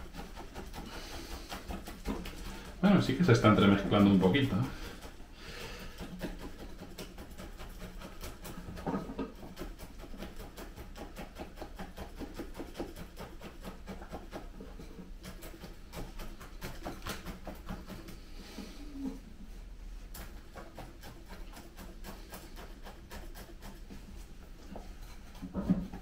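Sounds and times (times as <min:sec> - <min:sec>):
soil and roots scratching: 0:00.0 - 0:19.2.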